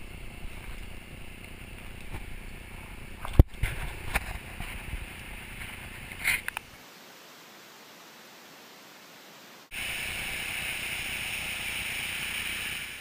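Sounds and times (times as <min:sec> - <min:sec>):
steady hiss: 0:00.0 - 0:13.0.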